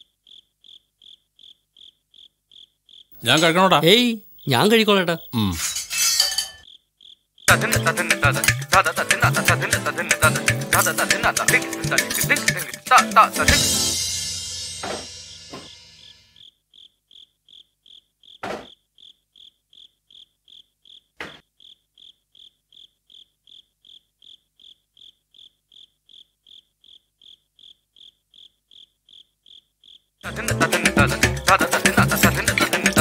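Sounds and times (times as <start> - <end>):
cricket chirping: 0.0 - 8.1, 14.9 - 30.3
steel pots clanking: 5.4 - 6.6
background music: 7.5 - 15.9, 30.3 - 33.0.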